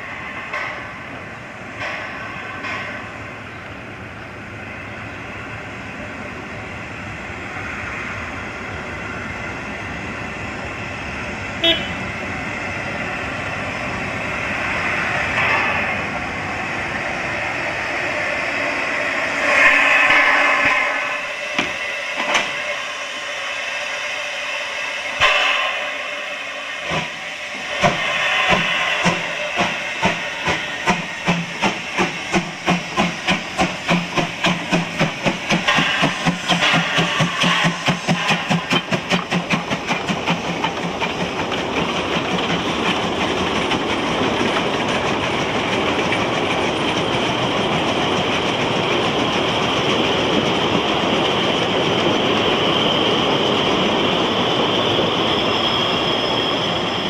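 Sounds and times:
carriages clattering on rails: 0.0s - 3.8s, 13.8s - 16.6s, 21.5s - 22.7s, 26.8s - 57.0s
hissing steam: 0.0s - 57.0s
steam locomotive exhaust beats: 0.0s - 57.0s.

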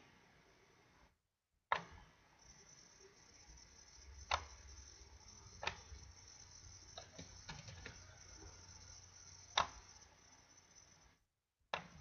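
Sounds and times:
faint low hum: 2.0s - 11.3s
computer mouse clicks: 4.2s - 4.6s, 5.6s - 5.9s, 7.0s - 8.1s, 9.5s - 9.9s
keyboard key presses: 7.0s - 8.1s.

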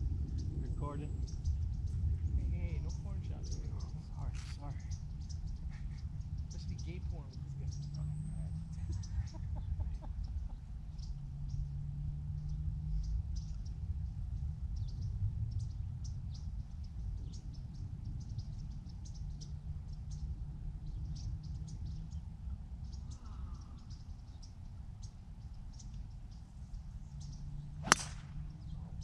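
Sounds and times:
wind rumbling on microphone: 0.0s - 29.0s
bird chirps: 0.2s - 11.7s, 14.8s - 29.0s
golf club striking ball: 27.8s - 28.6s.

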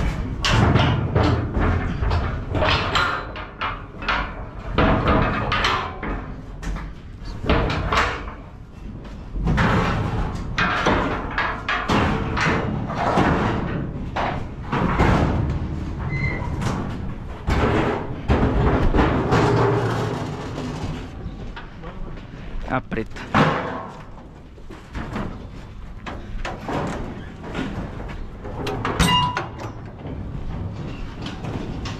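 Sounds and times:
metal gates clanking and banging: 0.0s - 21.8s, 22.9s - 31.9s.

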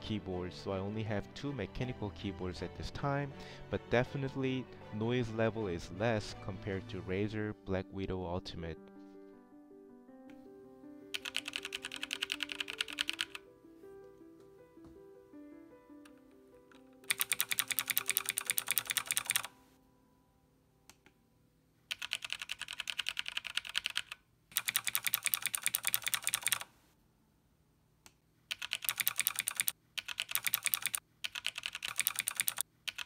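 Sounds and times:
fast typing on mechanical keyboard: 11.2s - 13.4s, 17.0s - 19.5s, 21.9s - 26.7s, 28.5s - 33.0s.

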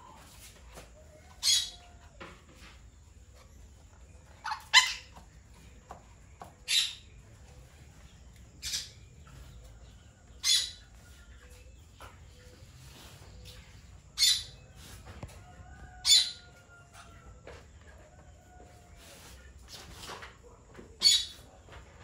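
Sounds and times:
parakeets screeching: 1.4s - 1.8s, 4.4s - 5.2s, 10.4s - 10.8s, 14.2s - 14.5s.

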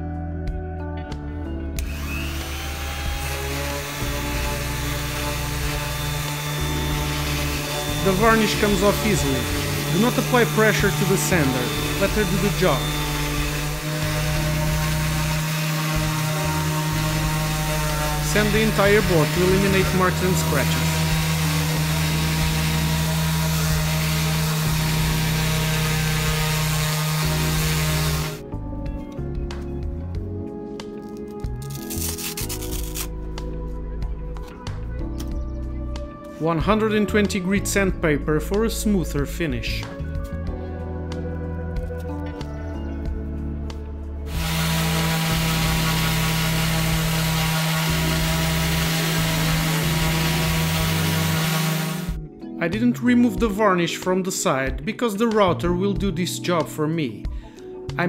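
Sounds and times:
orbital sander motor hum: 1.8s - 28.4s, 44.3s - 52.2s
sandpaper sanding wood: 2.0s - 28.4s, 31.6s - 33.1s, 44.3s - 52.2s
sandpaper hissing on wood: 31.6s - 33.1s, 44.3s - 52.1s.

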